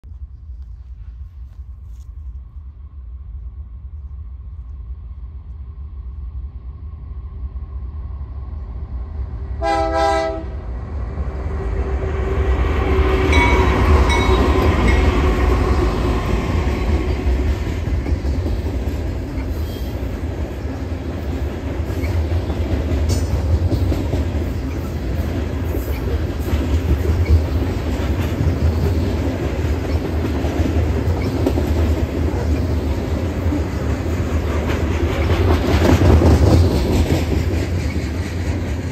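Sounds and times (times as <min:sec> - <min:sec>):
freight train rumble: 0:00.0 - 0:38.9
locomotive horn blast: 0:09.6 - 0:10.6.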